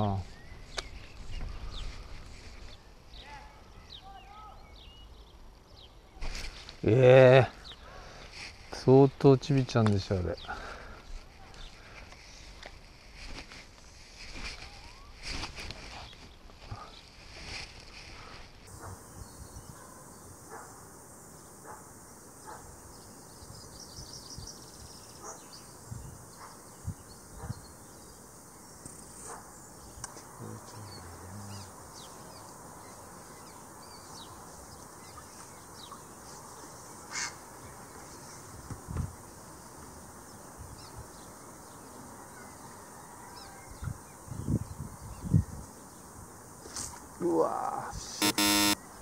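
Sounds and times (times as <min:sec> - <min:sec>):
steady hiss: 0:17.1 - 0:41.7
bird calls: 0:22.4 - 0:38.4.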